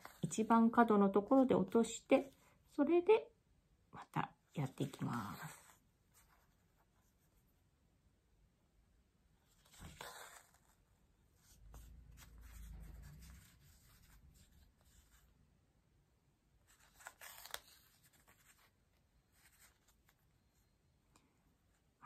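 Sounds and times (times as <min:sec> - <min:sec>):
thread drawn through fabric: 0:09.4 - 0:15.3, 0:16.6 - 0:20.6.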